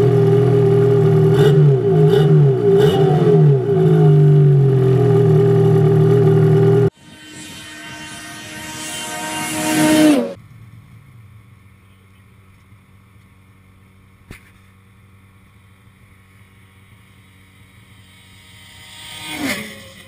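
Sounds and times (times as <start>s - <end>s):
snowmobile engine revving: 0.0s - 10.4s, 17.0s - 20.0s
snowmobile passing by: 0.0s - 10.4s, 17.2s - 20.0s.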